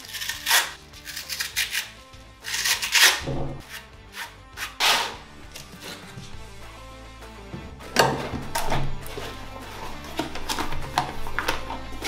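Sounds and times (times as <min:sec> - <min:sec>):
hook-and-loop sheet ripping: 0:00.0 - 0:03.3, 0:04.6 - 0:05.2
background music: 0:00.0 - 0:12.0.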